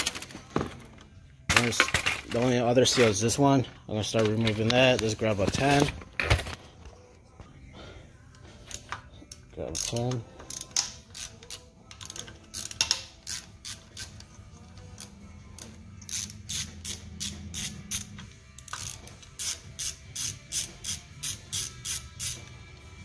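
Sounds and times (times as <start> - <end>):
socket ratchet clicking: 8.7 - 14.3, 14.9 - 22.6.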